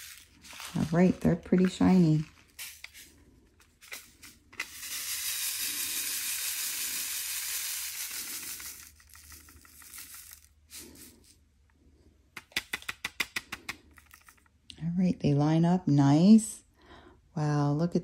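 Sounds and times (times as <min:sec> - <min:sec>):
plastic beads rattling in tray: 0:00.0 - 0:11.4, 0:13.7 - 0:14.6.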